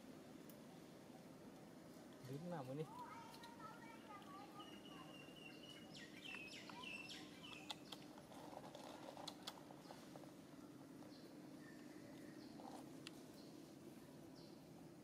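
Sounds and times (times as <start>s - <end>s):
low steady hum: 0.0s - 15.0s
faint high chirping calls: 2.6s - 15.0s.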